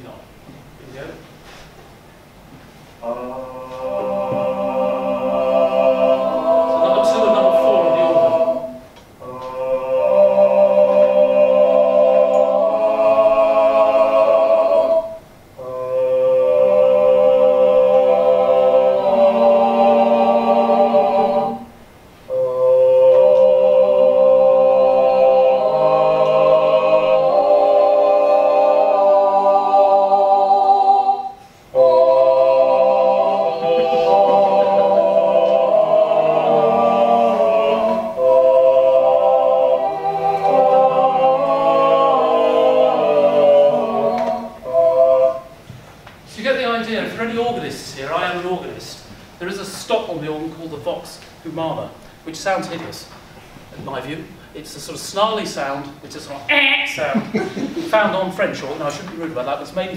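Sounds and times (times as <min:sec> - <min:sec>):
people singing held chords: 0:03.0 - 0:45.8
vocal tract organ: 0:03.0 - 0:45.8.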